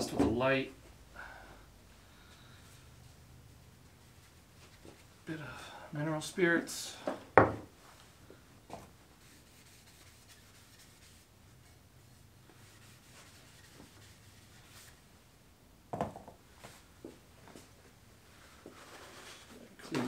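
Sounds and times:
cloth rag rubbing wood: 9.1 - 15.0.

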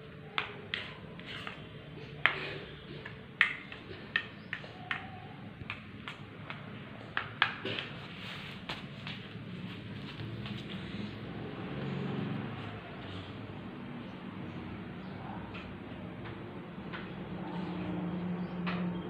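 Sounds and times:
sharp clicks and taps: 3.0 - 8.0.

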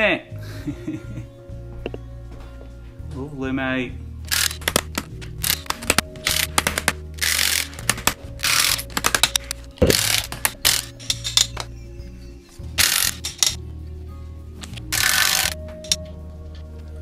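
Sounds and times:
impact wrench bursts: 4.3 - 11.5, 12.8 - 13.6, 14.9 - 15.6
metal socket clicks: 12.8 - 13.6, 14.6 - 16.1.

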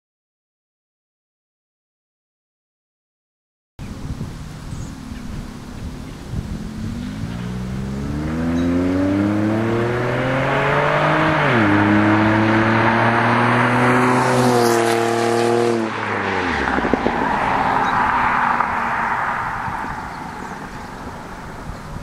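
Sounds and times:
car engine accelerating hard: 4.3 - 21.6.

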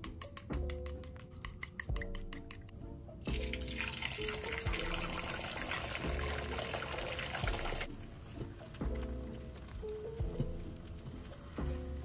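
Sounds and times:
background music: 0.0 - 12.0
eggs sizzling in a pan: 3.3 - 12.0.

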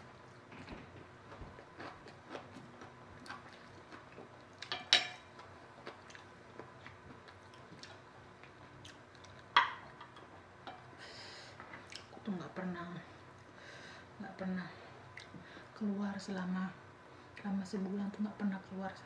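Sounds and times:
person chewing noodles: 0.3 - 4.7, 5.4 - 9.5.

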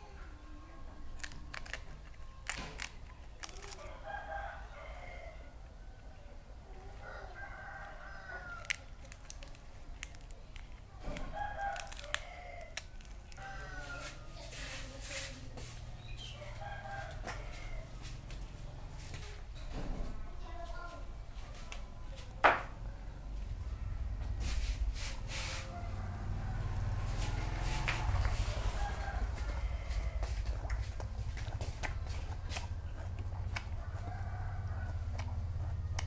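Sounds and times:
sharp clicks and crackles: 1.1 - 3.9, 8.6 - 13.4
rooster crowing: 3.8 - 6.1, 7.0 - 8.8, 11.3 - 14.5, 16.3 - 18.1, 25.6 - 30.4, 33.8 - 35.1.

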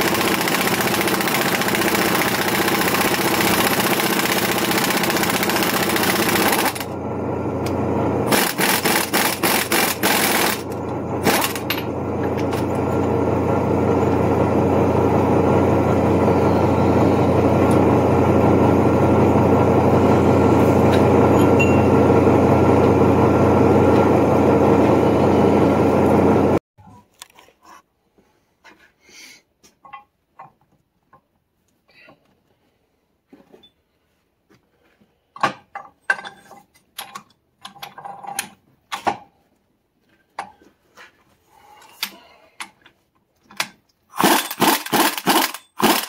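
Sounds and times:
machine running: 0.0 - 26.6, 44.2 - 46.0.

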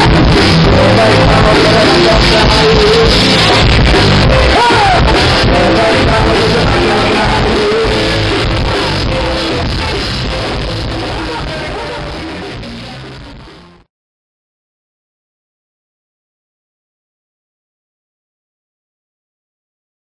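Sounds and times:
person singing: 0.0 - 13.8
live band playing: 0.0 - 13.9.

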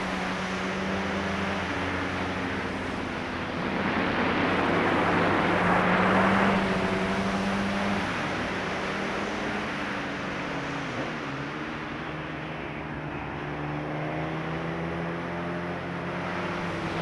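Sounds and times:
wind rushing over microphone: 0.0 - 12.2.

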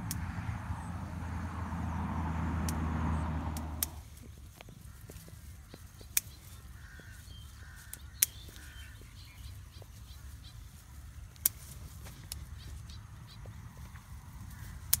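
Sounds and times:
low steady rumble: 0.0 - 4.3
shears snipping stems: 3.5 - 4.2, 5.1 - 6.7, 11.3 - 13.0, 14.7 - 15.0.

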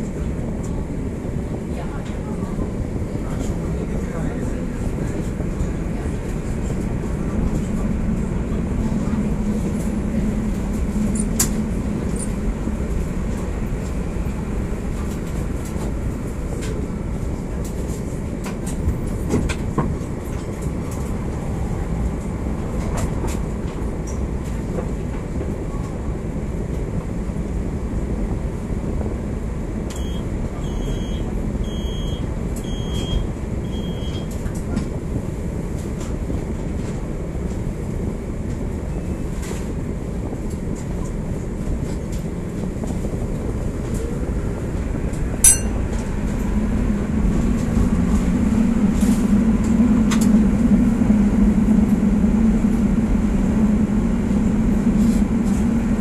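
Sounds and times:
tram low rumble: 0.0 - 56.0
short high beeps: 45.5 - 45.7.

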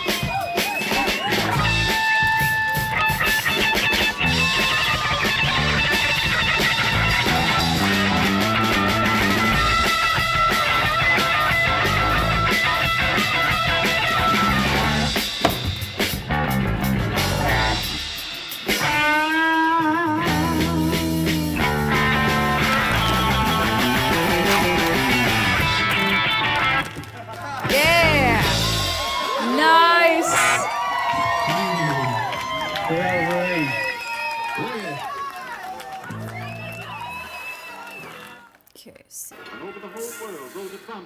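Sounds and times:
rock band music: 0.0 - 27.0, 27.6 - 30.7
wavering lead guitar line: 18.8 - 26.8, 27.8 - 28.9.

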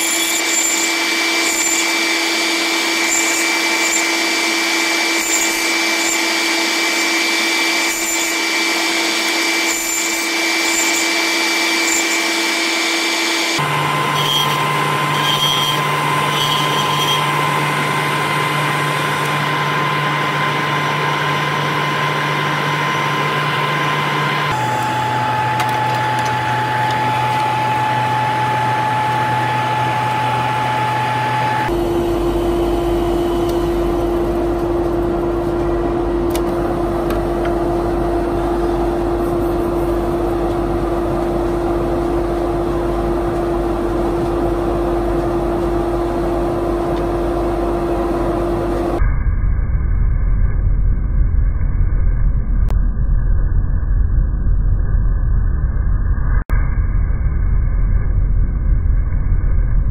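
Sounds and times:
wood lathe running: 0.0 - 35.1
dust extractor running: 0.0 - 49.0
turning tool scraping: 9.2 - 19.4.

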